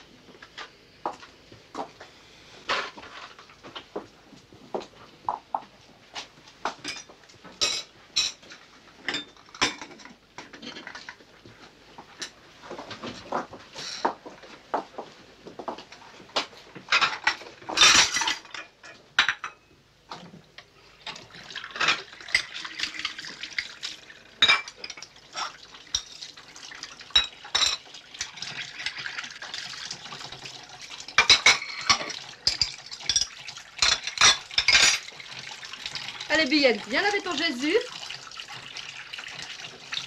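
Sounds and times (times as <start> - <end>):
crockery clinking and knocking: 9.1 - 11.0, 16.9 - 19.7, 31.2 - 35.1
tap water running into sink: 21.0 - 40.0.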